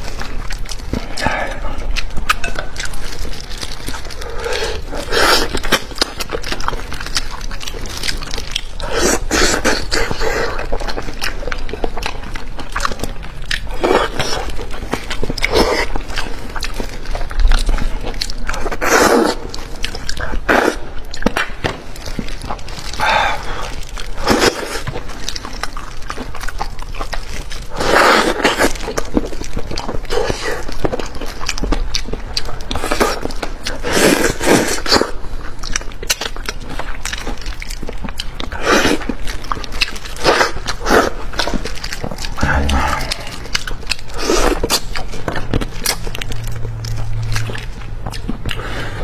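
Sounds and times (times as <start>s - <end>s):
wet chewing and lip smacks: 0.0s - 49.0s
sucking noises: 42.4s - 43.5s.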